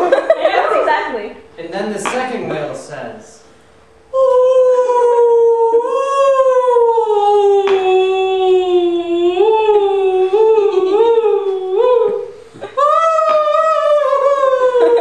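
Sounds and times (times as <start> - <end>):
woman crooning whale song: 4.1 - 15.0.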